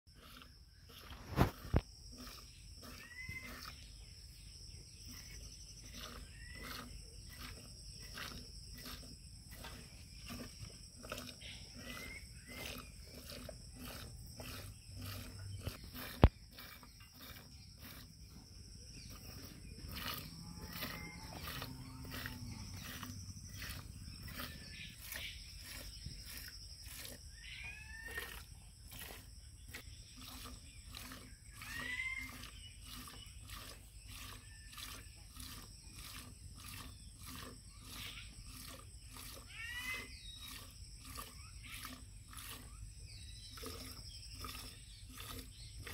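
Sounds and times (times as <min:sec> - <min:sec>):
milk squirting into metal can: 0:00.2 - 0:04.0, 0:05.0 - 0:27.5, 0:28.1 - 0:39.5
low animal call: 0:19.1 - 0:29.2, 0:30.2 - 0:42.6.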